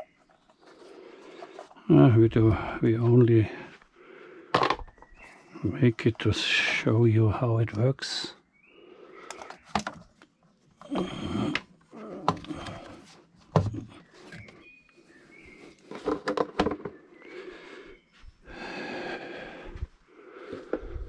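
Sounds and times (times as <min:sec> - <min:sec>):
rubber hose rubbing and scraping: 0:00.0 - 0:03.8.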